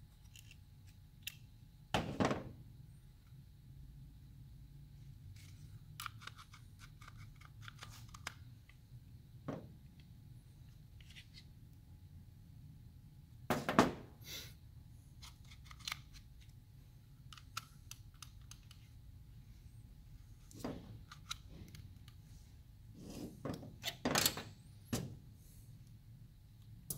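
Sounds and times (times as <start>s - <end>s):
plastic parts clicking and clattering: 0.2s - 1.4s, 5.4s - 8.8s, 15.2s - 16.6s, 17.2s - 19.0s, 20.4s - 22.2s.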